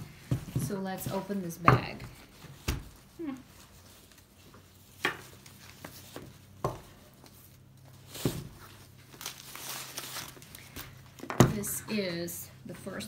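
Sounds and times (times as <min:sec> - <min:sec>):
cloth bag rustling and crinkling: 0:07.4 - 0:11.2.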